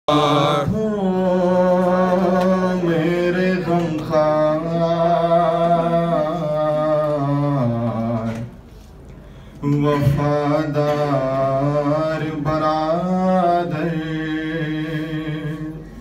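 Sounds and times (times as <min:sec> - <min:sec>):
man chanting a lament: 0:00.1 - 0:08.5, 0:09.6 - 0:16.0
singer breath: 0:08.8 - 0:09.6, 0:15.7 - 0:16.0.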